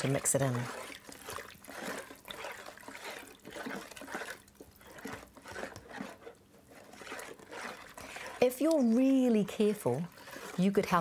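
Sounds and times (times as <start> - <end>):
spoon stirring liquid in bowl: 0.0 - 11.0.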